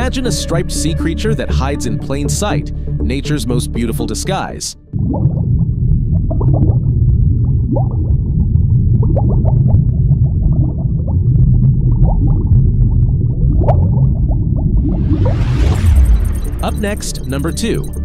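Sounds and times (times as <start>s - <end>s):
bubbles gurgling and popping: 4.9s - 16.2s
low underwater rumble: 4.9s - 18.0s.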